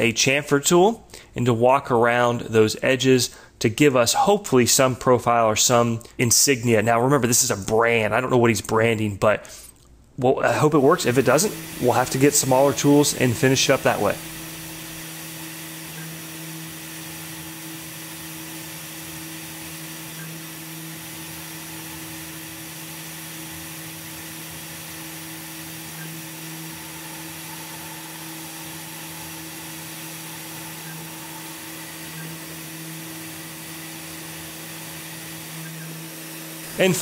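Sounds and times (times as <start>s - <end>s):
milling machine humming: 10.8s - 37.0s.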